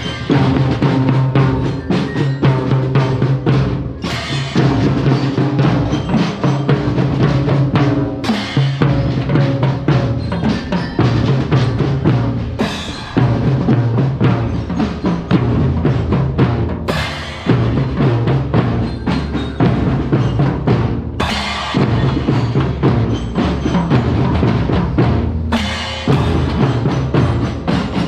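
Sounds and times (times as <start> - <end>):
snare drums: 0.0 - 28.0
bass drums: 2.4 - 28.0
crash cymbals: 3.6 - 9.6, 10.2 - 20.5, 21.1 - 24.3.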